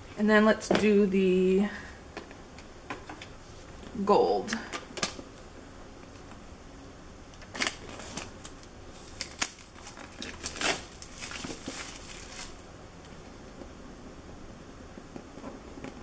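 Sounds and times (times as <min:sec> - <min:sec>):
plastic wrapping crinkling: 0:07.4 - 0:13.2.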